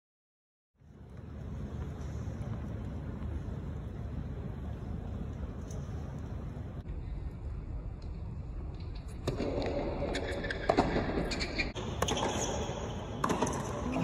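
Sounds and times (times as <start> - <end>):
low crowd hum: 0.8 - 10.8
tennis ball hits and bounces: 11.8 - 14.0.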